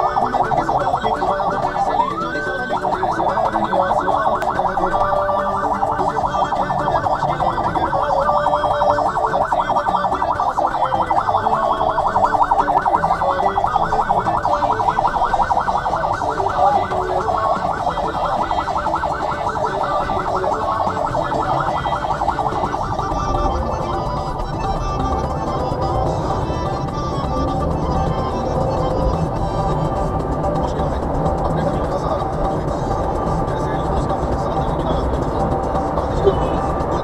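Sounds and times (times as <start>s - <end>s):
emergency siren warbling: 0.0s - 37.0s
traffic rumble: 0.0s - 37.0s.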